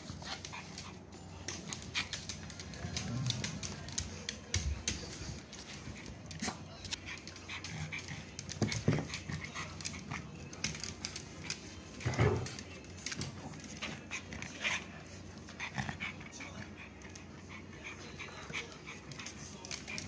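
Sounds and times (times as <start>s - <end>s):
dogs panting: 0.0s - 20.0s.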